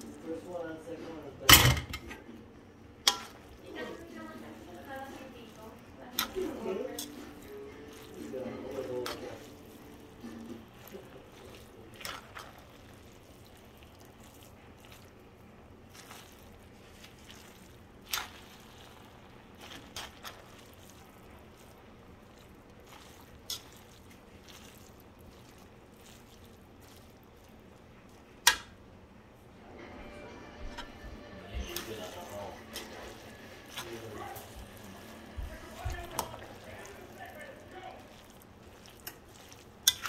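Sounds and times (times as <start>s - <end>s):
noodles squishing: 3.0s - 29.4s, 31.5s - 40.0s
utensil clicking on wok: 28.4s - 28.8s.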